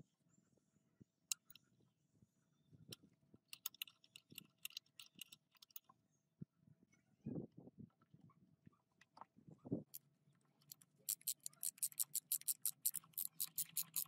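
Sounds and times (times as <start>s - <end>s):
ratcheting wrench clicking: 3.6s - 5.8s, 10.7s - 14.0s.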